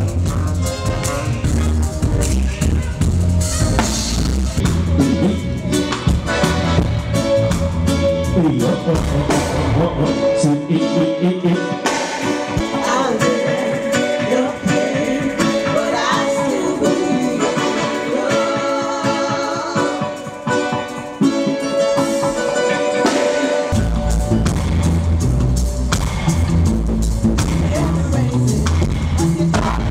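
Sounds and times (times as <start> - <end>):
bass guitar: 0.0 - 29.9
reggae band playing: 0.0 - 29.9
women singing harmonies: 12.6 - 20.3.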